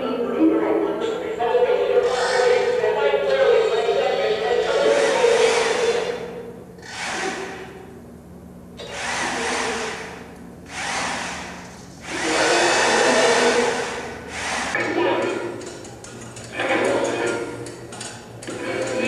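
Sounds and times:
steady low hum: 0.0s - 19.0s
machine whirring blasts: 4.7s - 7.9s, 8.8s - 14.9s.

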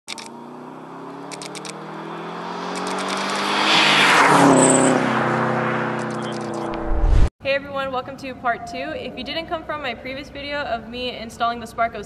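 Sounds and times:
car engine passing by: 0.1s - 7.3s.

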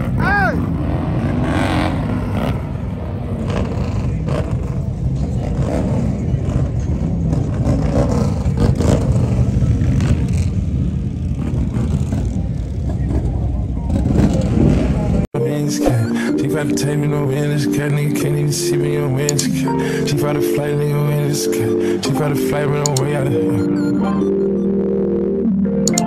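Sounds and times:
motorcycle engines running: 0.0s - 15.3s.

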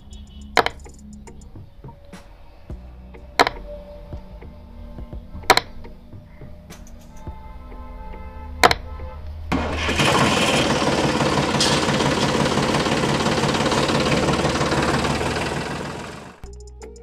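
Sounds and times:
toy tractor motor running: 9.6s - 16.4s.

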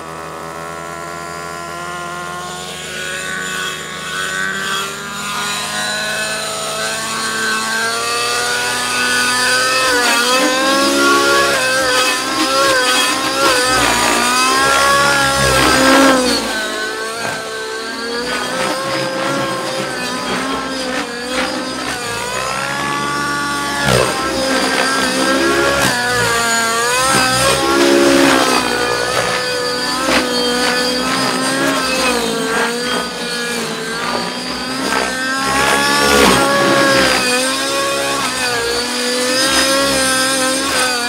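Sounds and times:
model helicopter engine: 0.0s - 41.0s
rotor blades whooshing: 8.9s - 38.8s.

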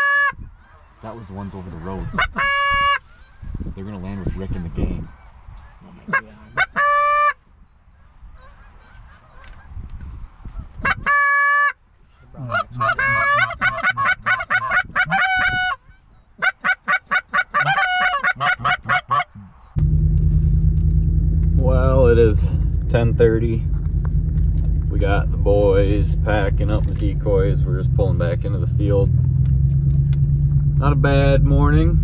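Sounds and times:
geese honking: 0.0s - 3.5s, 5.1s - 7.4s, 10.5s - 19.7s
vehicle low rumble: 0.4s - 16.4s, 17.6s - 32.0s.

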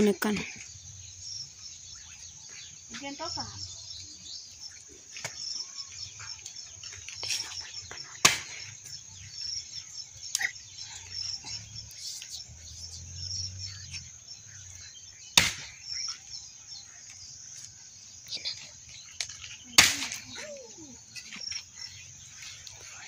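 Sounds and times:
insects chirping: 0.0s - 23.0s
axe splitting firewood: 15.4s - 15.8s, 19.8s - 20.2s.

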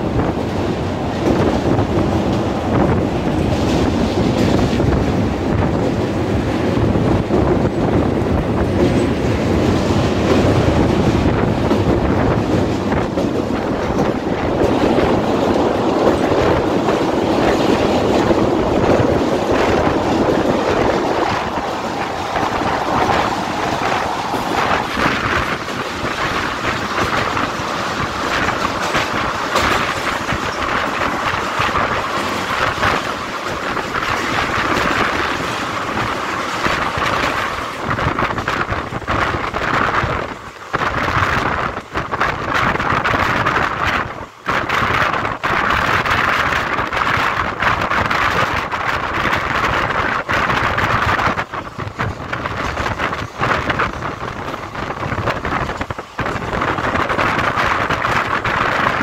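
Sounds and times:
train clattering over bridge: 0.0s - 59.0s
train rumbling: 0.0s - 59.0s
wind buffeting microphone: 0.0s - 59.0s.

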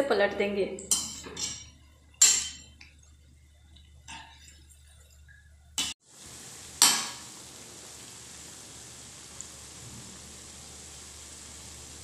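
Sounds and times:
fritters sizzling in hot oil: 0.8s - 12.0s
spatula clinking on pan: 0.9s - 2.8s.

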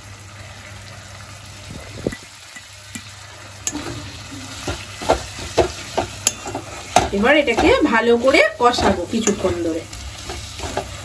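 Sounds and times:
food sizzling in pan: 0.0s - 11.0s
metal spatula scraping pan: 3.7s - 11.0s.

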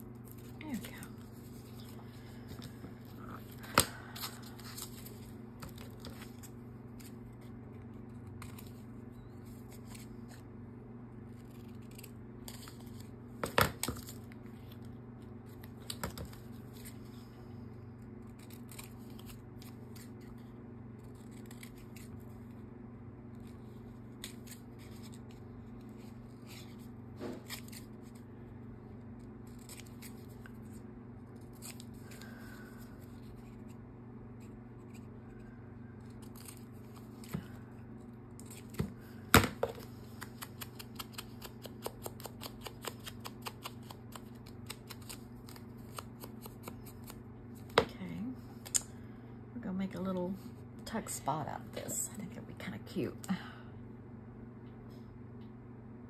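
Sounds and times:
steady low hum: 0.0s - 56.0s
scissors snipping: 40.2s - 47.2s.

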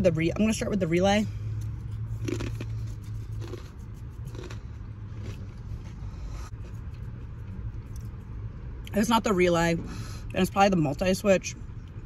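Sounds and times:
low steady hum: 0.0s - 12.0s
person chewing crunchy snack: 1.6s - 8.2s.

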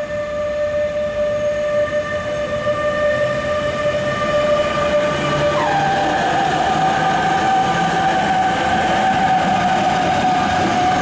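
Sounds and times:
locomotive high whine: 0.0s - 11.0s
train wheels rolling: 4.0s - 11.0s.

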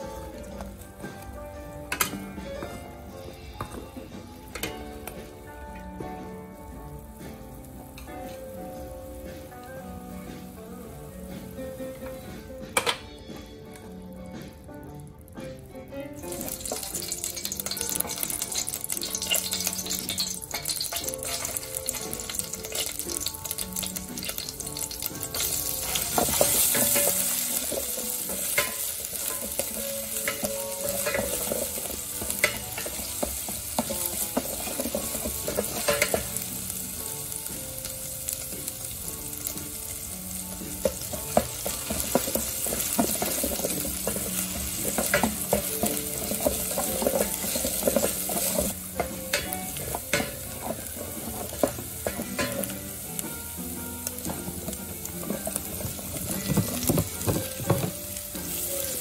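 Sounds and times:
food sizzling in hot oil: 0.0s - 59.0s
wooden spatula scraping metal pot: 24.2s - 36.3s, 40.8s - 52.8s.

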